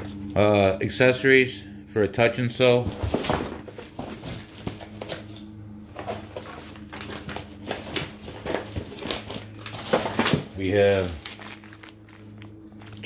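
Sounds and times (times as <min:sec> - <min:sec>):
low hum: 0:00.0 - 0:13.0
cardboard boxes knocking and scraping: 0:02.8 - 0:05.3.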